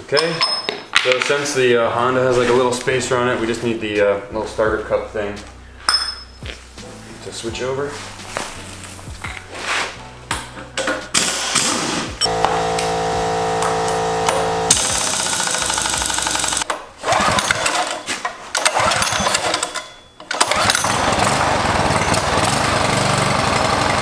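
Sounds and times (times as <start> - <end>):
pneumatic impact wrench: 11.1 - 23.9.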